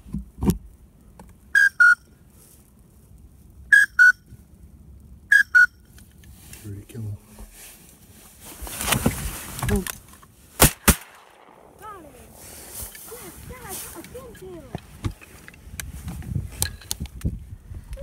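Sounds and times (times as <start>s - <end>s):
duck whistle call: 1.6s - 2.1s, 3.7s - 4.2s, 5.3s - 5.8s.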